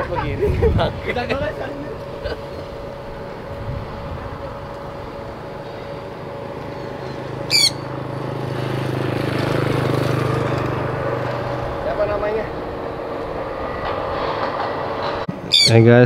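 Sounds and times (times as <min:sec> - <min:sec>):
low droning hum: 0:00.0 - 0:16.0
steady background hum: 0:00.0 - 0:16.0
parrot high-pitched call: 0:07.5 - 0:07.9, 0:15.5 - 0:15.8.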